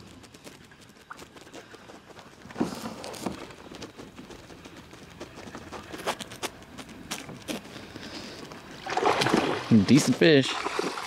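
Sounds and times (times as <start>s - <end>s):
faint water noise: 4.5s - 11.0s.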